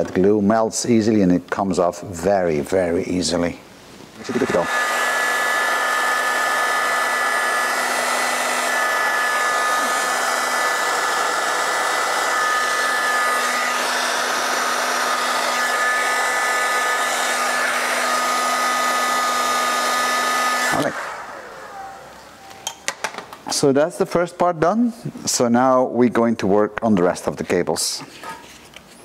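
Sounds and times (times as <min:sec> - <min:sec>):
heat gun blowing: 0:04.0 - 0:22.7.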